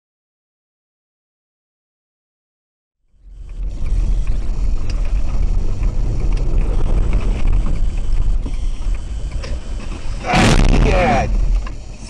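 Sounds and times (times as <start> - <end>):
car road and engine rumble: 3.0 - 12.0.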